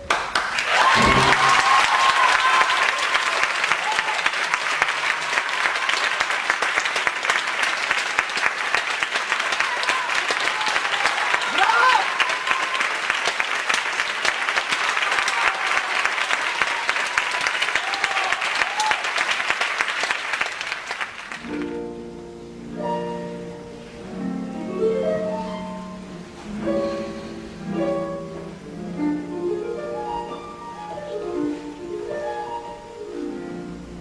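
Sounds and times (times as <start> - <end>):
audience applauding: 0.0 - 21.7
orchestral ballet music: 1.0 - 2.1, 21.4 - 34.0.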